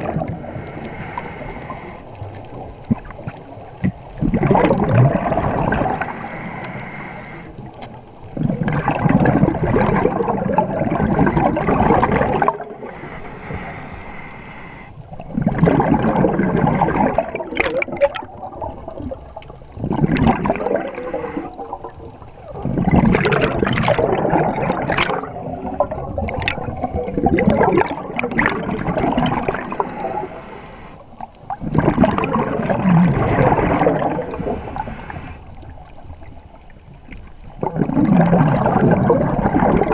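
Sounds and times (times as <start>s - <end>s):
exhaled bubbles bursting: 0.0s - 13.1s, 15.0s - 39.9s
diver breathing through regulator: 0.2s - 2.6s, 5.2s - 7.8s, 12.2s - 15.0s, 20.5s - 21.8s, 24.2s - 27.0s, 27.9s - 31.4s, 33.4s - 35.7s.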